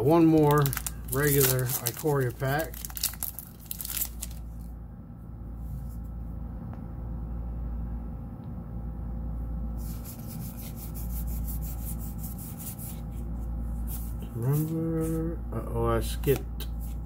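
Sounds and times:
foil wrapper crinkling: 0:00.0 - 0:04.7
low steady hum: 0:00.0 - 0:17.0.

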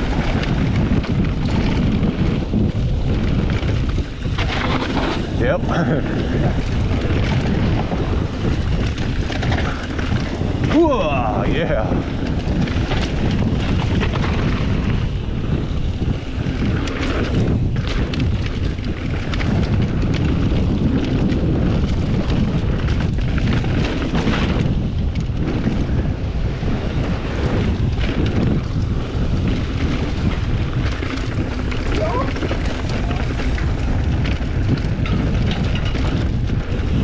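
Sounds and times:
bike clicks and rattles: 0:00.0 - 0:37.0
tyres rolling over dirt: 0:00.0 - 0:37.0
wind buffeting microphone: 0:00.0 - 0:37.0.

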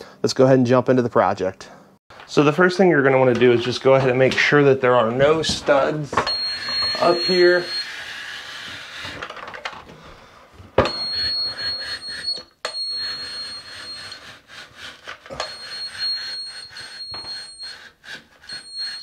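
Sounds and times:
stud finder high-pitched tone: 0:05.2 - 0:08.3, 0:10.8 - 0:14.3.

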